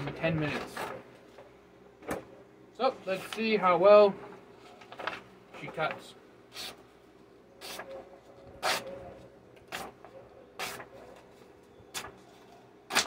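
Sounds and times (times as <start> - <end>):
knife slicing through paper: 8.6 - 8.9, 10.6 - 10.9.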